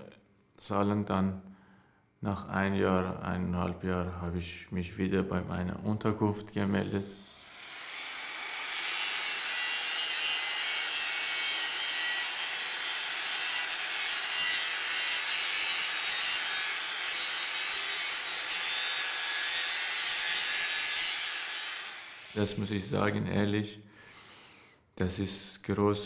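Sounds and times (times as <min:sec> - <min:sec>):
angle grinder grinding steel: 0:07.2 - 0:22.5.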